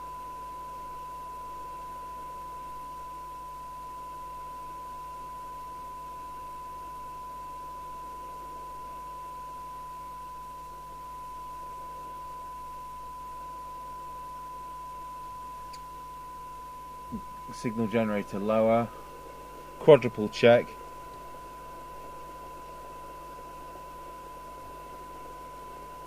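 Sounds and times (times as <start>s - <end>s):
steady test tone: 0.0s - 26.0s
radio hiss: 17.1s - 23.7s.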